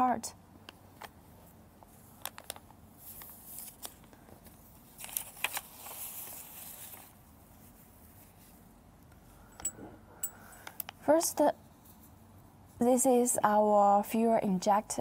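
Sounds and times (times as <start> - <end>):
plastic bag rustling and crinkling: 1.8 - 8.5.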